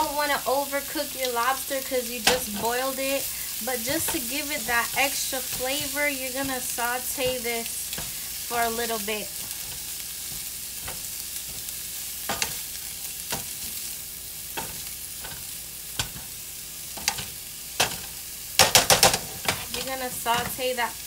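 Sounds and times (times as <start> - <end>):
food sizzling in a frying pan: 0.0 - 21.0
tongs tapping pan: 0.9 - 20.9.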